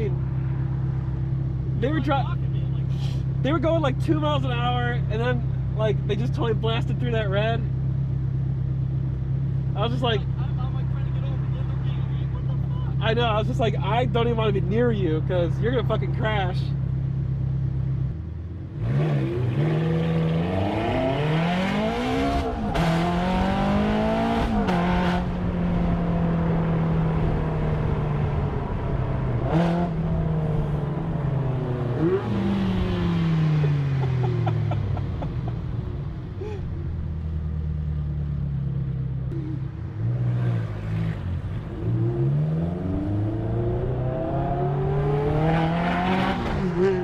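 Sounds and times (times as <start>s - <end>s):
car engine revving: 15.6s - 47.0s.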